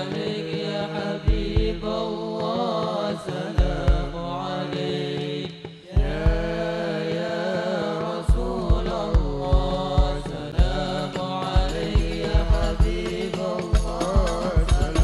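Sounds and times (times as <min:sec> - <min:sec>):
hand drums: 0:00.0 - 0:15.0
men singing in unison: 0:00.0 - 0:15.0
deep bass drum beating: 0:03.6 - 0:04.4, 0:06.0 - 0:06.7, 0:08.3 - 0:15.0.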